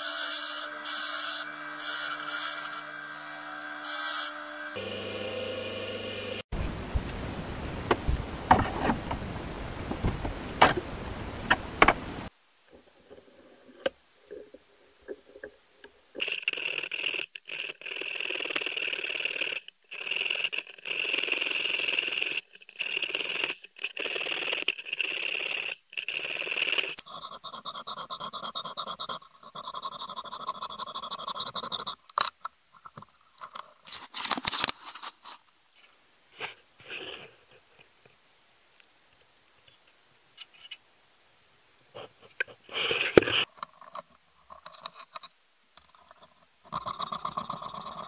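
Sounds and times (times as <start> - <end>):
file rasping on brass: 0.0 - 4.8.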